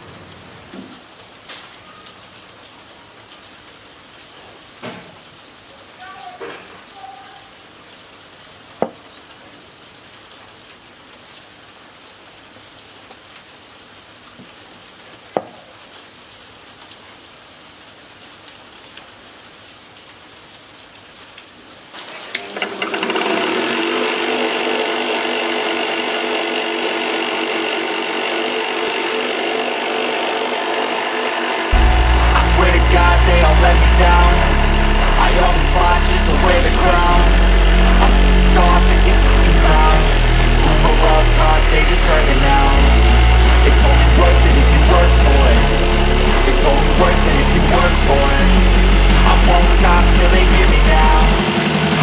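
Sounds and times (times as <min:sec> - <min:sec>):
power tool whirring: 0:22.3 - 0:52.0.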